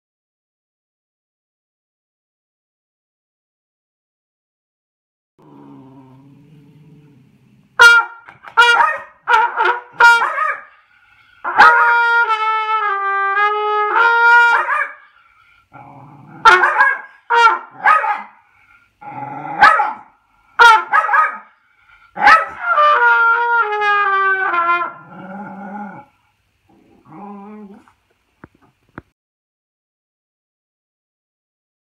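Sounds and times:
dog barking: 7.8s - 10.7s, 11.5s - 12.0s, 14.4s - 15.1s, 16.4s - 18.4s, 19.6s - 21.6s, 22.2s - 22.8s
trumpet playing: 7.8s - 15.1s, 16.4s - 18.3s, 20.6s - 21.5s, 22.2s - 25.1s.

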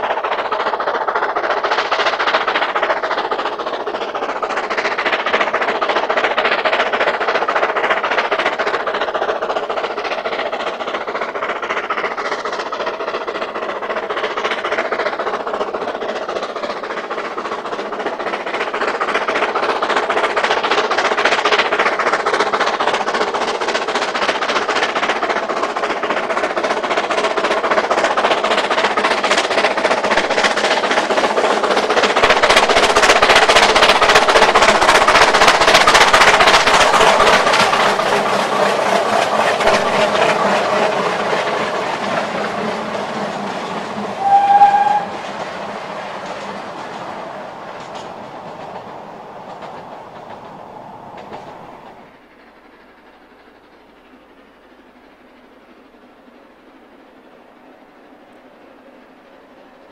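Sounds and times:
carriages rattling on rails: 0.0s - 59.9s
steam locomotive working: 0.0s - 59.9s
steam whistle: 44.2s - 45.2s.

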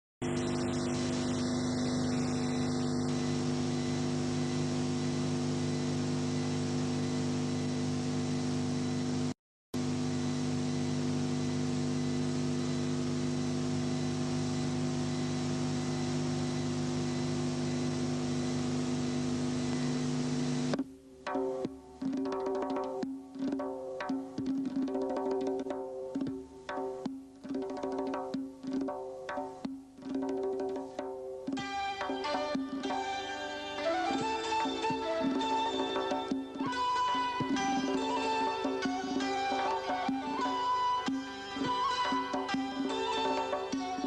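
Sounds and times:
electrical hum: 0.2s - 20.8s.

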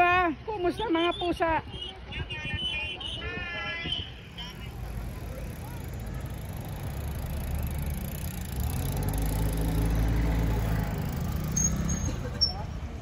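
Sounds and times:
vehicle engine humming: 4.1s - 13.0s.

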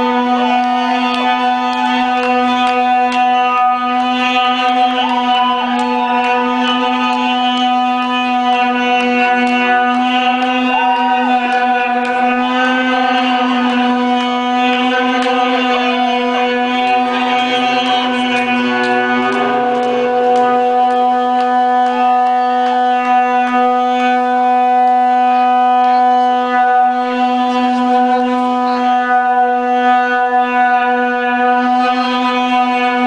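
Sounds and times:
band droning note: 0.0s - 33.0s.

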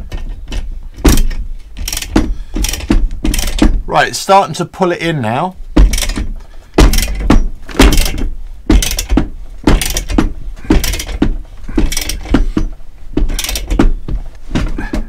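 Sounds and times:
ratchet wrench strokes: 13.3s - 13.8s.

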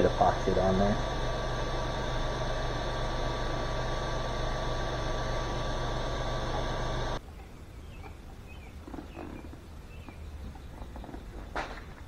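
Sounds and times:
fan whirring: 0.0s - 7.2s
high whine: 0.0s - 7.2s
low hum: 0.0s - 8.5s.

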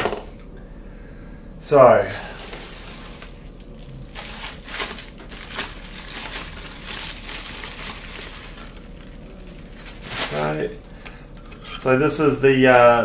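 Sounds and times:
bubble wrap crinkling: 2.0s - 11.7s.

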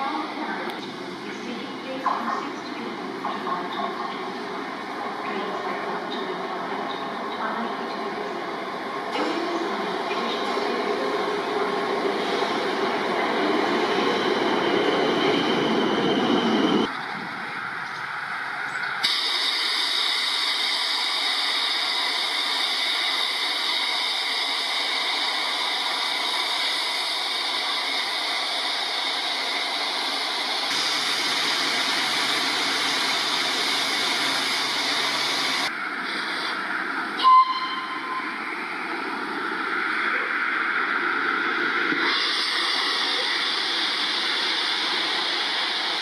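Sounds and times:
steam locomotive hissing steam: 9.2s - 16.8s, 19.0s - 38.3s, 41.6s - 46.0s.

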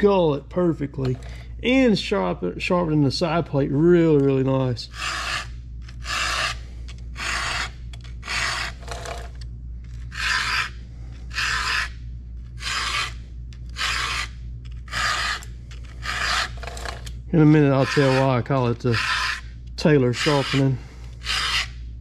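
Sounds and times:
file rasping on saw chain: 4.9s - 6.6s, 7.2s - 9.3s, 10.1s - 12.0s, 12.6s - 13.2s, 13.8s - 14.3s, 14.9s - 17.0s, 17.6s - 19.4s, 20.1s - 21.7s.

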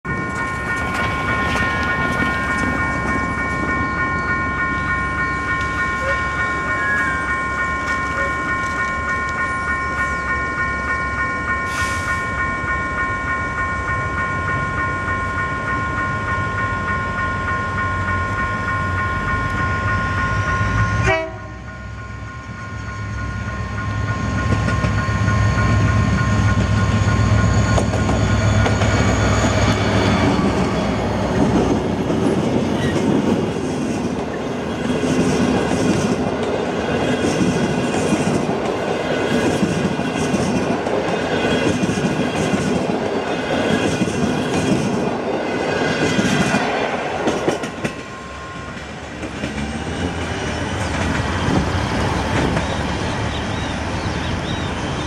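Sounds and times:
train wheels on rails: 0.0s - 55.0s
locomotive air horn blast: 21.0s - 21.6s.

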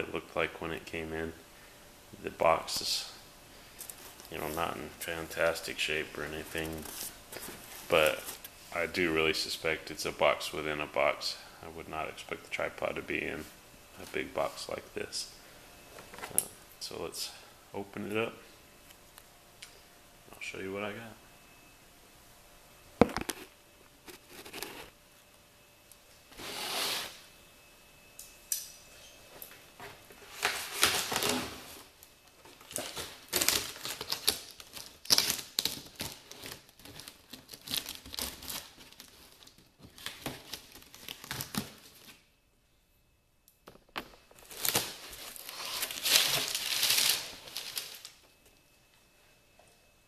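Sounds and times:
cardboard crackling and scraping: 24.0s - 25.0s
packing tape ripping: 32.7s - 42.0s, 44.4s - 48.1s.

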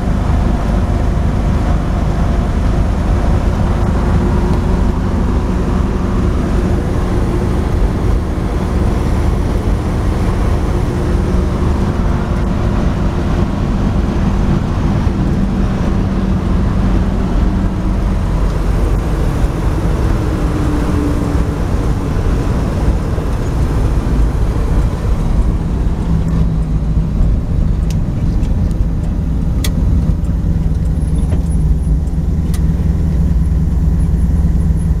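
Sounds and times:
pickup engine drone: 0.0s - 35.0s
road noise hiss: 0.0s - 35.0s.

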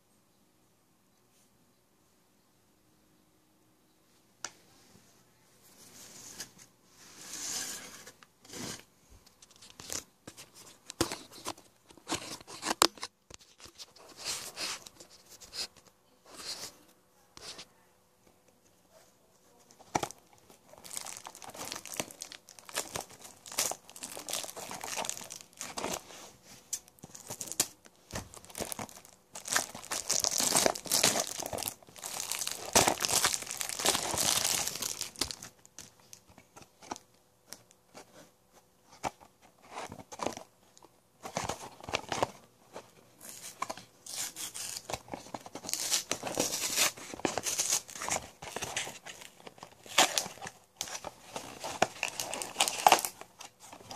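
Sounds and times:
packaging crinkling and tearing: 19.8s - 26.1s, 26.8s - 37.0s, 39.7s - 53.9s.

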